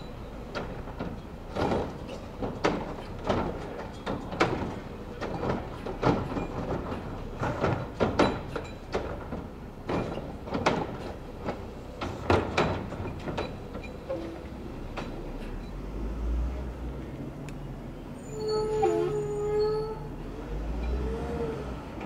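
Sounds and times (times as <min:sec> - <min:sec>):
metal clanks and knocks: 0:00.5 - 0:15.8.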